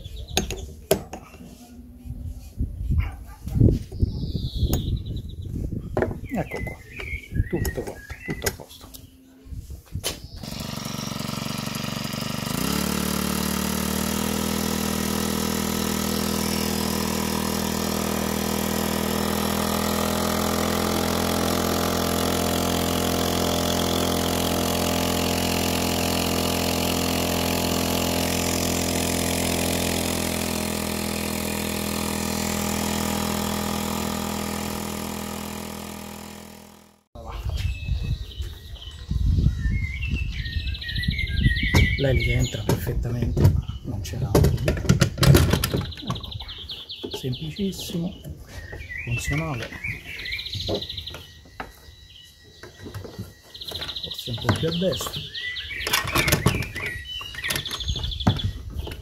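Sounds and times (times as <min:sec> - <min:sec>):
outboard motor running: 0:10.3 - 0:37.2, 0:52.5 - 0:59.0
propeller churning water: 0:10.4 - 0:37.1.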